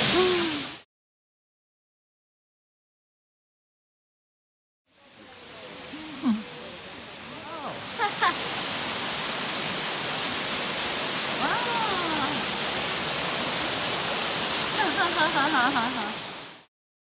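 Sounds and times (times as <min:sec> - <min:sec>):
waterfall rushing: 0:00.0 - 0:00.8, 0:04.9 - 0:16.7.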